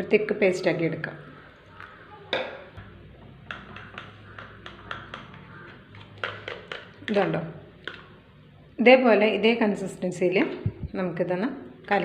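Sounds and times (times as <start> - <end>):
spoon knocking bowl: 2.4 - 8.1
spoon clicking against plastic bowl: 3.4 - 8.0.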